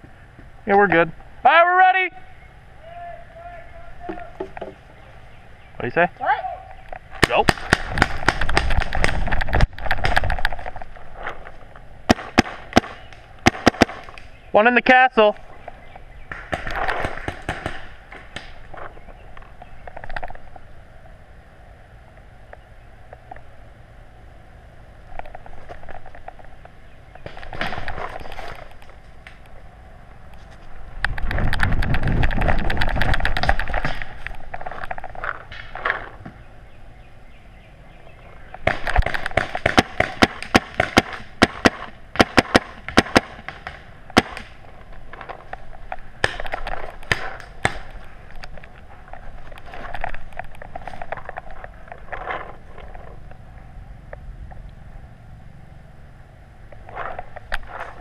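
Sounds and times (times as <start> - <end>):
paintball marker firing pops: 7.2 - 10.5, 46.2 - 48.0
rustling and handling noise: 25.1 - 29.6, 44.0 - 53.4.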